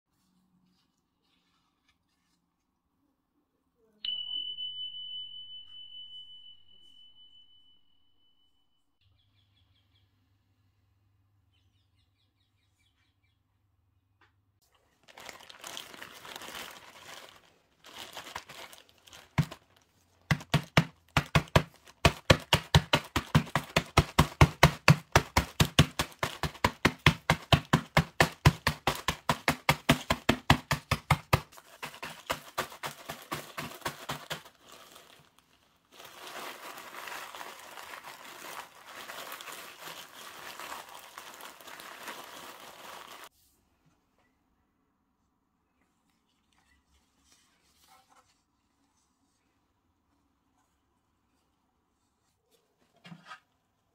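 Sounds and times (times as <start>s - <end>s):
plastic packaging crinkling: 14.7s - 43.3s
rapid knocks crushing biscuits: 15.1s - 35.4s.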